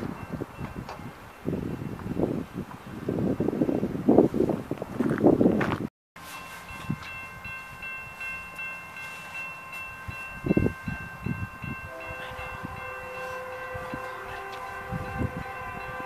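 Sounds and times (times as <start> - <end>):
locomotive horn blast: 11.8 - 16.0.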